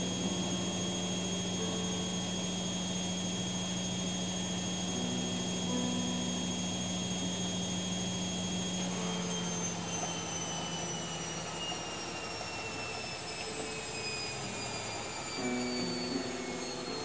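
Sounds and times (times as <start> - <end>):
mechanical whine and rumble: 0.0 - 17.0.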